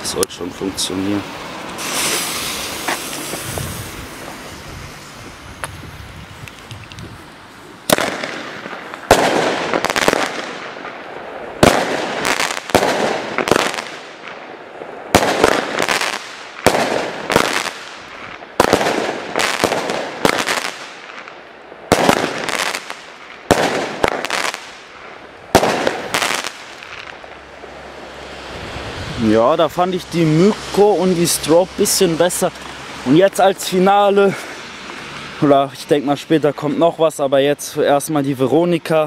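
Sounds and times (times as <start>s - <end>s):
fireworks battery bangs: 1.7s - 6.6s, 7.9s - 28.3s.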